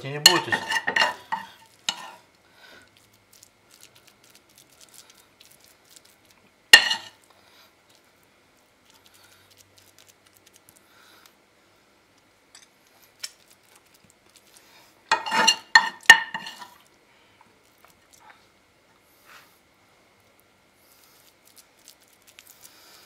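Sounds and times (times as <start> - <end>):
spoon scraping: 0.2 - 2.2, 6.8 - 7.2, 15.1 - 16.8.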